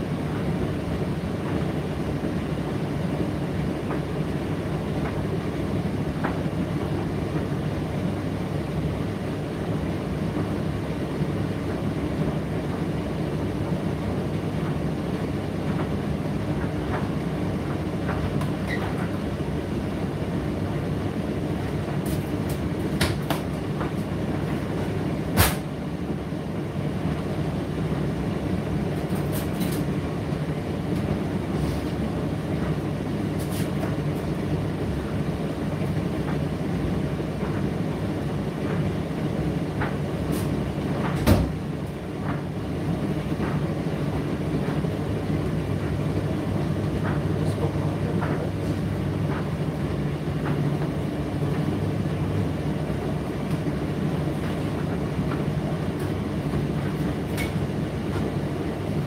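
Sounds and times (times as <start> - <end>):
tumble dryer drum rumbling: 0.0 - 59.0
sharp knock in dryer: 22.0 - 24.0, 25.3 - 25.7, 39.8 - 41.6.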